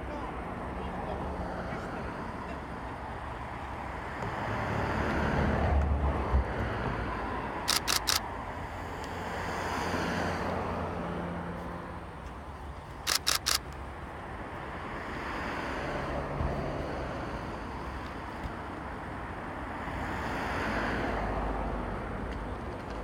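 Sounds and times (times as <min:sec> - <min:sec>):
camera shutter clicks: 0:07.6 - 0:08.2, 0:13.1 - 0:13.8.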